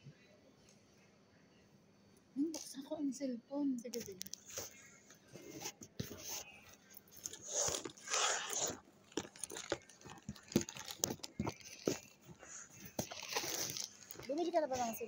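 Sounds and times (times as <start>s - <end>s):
phone handling rustles: 5.4s - 15.0s.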